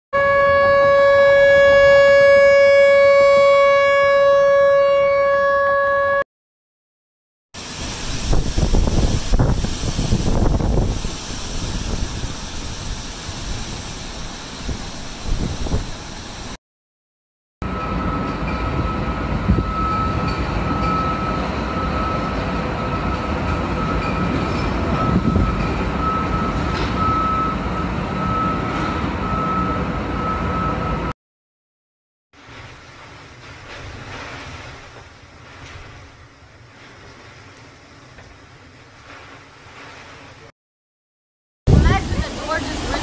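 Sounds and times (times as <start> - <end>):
wind and rain: 7.6 - 16.6, 17.7 - 31.1, 32.4 - 40.5, 41.7 - 43.0
wind gusting on microphone: 7.8 - 16.5, 23.8 - 26.4, 41.7 - 43.0.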